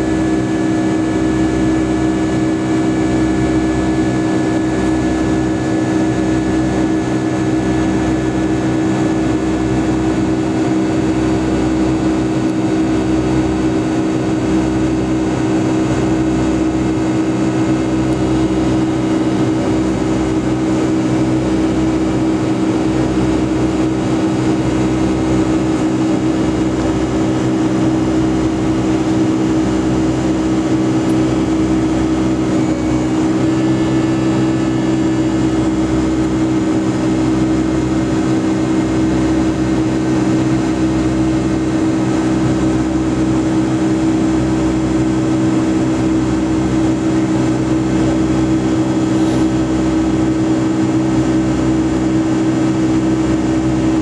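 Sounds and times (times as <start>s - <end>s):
jet engine drone: 0.0s - 54.0s
rush of air: 49.0s - 49.8s.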